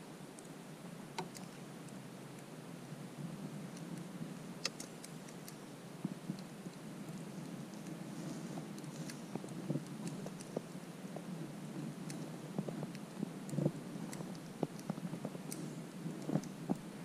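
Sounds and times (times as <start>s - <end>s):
sharp clicks: 3.8s - 5.6s.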